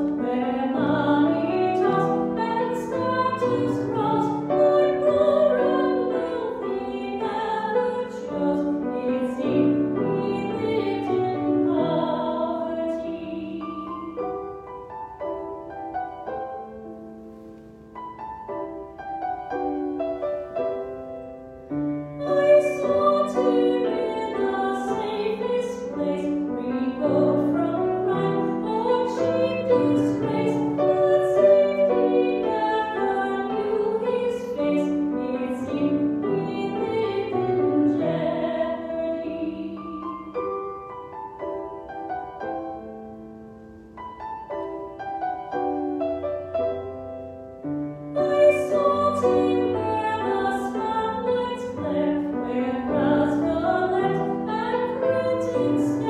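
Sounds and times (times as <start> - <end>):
woman singing a hymn: 0.0 - 14.7, 22.1 - 40.6, 48.1 - 56.0
piano accompaniment: 0.0 - 56.0.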